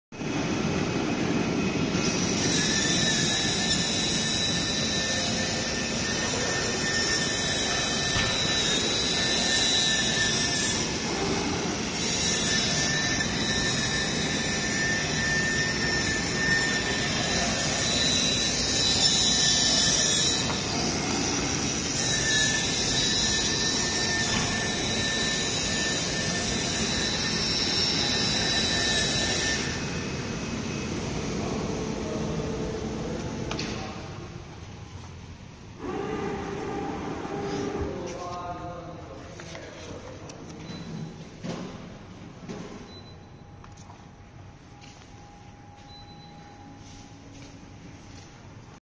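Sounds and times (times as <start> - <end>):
machine drone: 0.2 - 35.0, 35.7 - 38.1.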